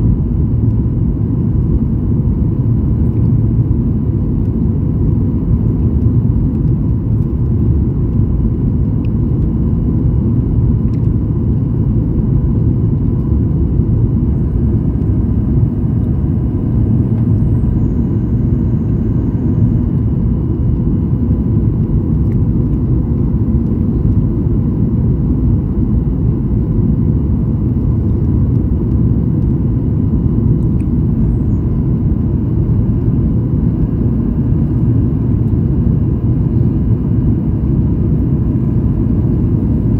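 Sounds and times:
jet engine cabin rumble: 0.0 - 39.9
faint high whine: 13.3 - 21.6.

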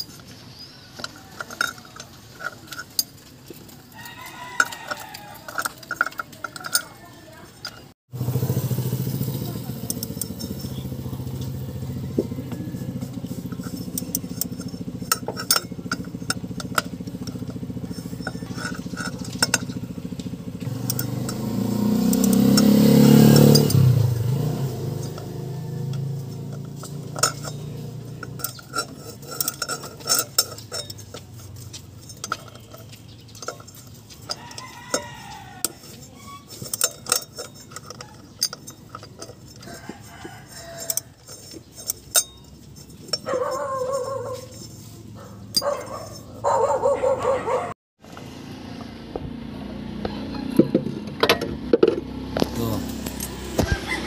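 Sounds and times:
metallic clinks and taps: 0.0 - 7.9, 9.5 - 47.5
engine idling: 4.6 - 54.0
sharp metallic clicks: 8.6 - 44.7.

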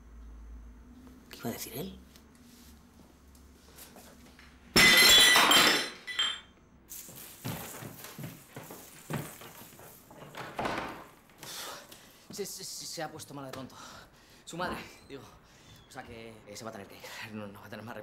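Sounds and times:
glassware and dishes clattering: 4.8 - 6.5.

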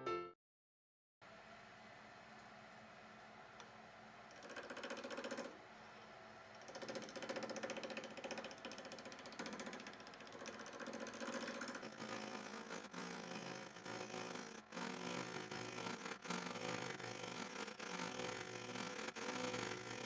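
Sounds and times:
wood lathe hum: 1.3 - 20.0
turning tool chatter: 6.6 - 20.0.

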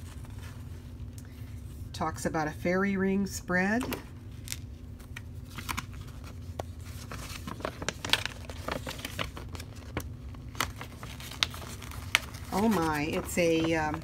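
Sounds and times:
paper crackling and rustling: 0.0 - 1.0, 4.3 - 14.0.

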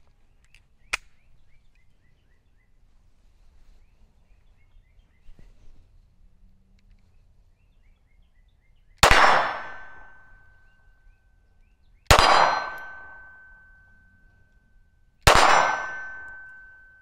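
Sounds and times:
pistol shots with ringing: 9.0 - 10.7, 12.1 - 14.2, 15.2 - 17.0.

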